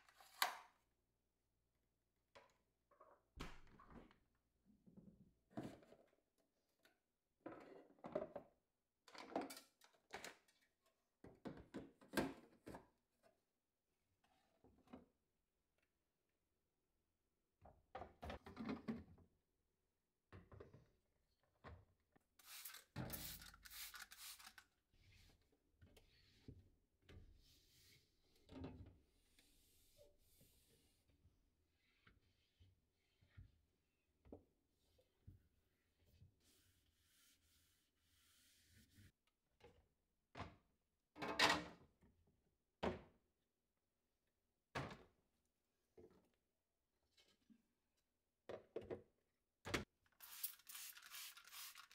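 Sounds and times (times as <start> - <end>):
spray bottle hissing sprays: 22.4 - 24.6, 50.2 - 51.9.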